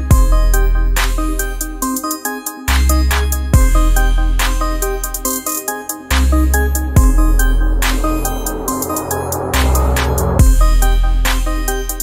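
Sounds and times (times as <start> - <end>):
electronic music with deep bass: 2.9 - 11.2
noisy swell: 6.4 - 10.7.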